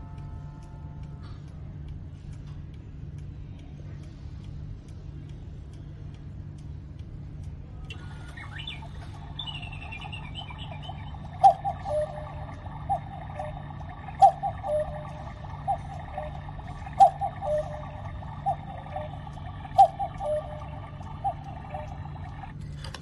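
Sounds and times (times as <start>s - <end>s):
recorded birds chirping: 7.8s - 22.6s
electronic cuckoo calls: 7.9s - 22.7s.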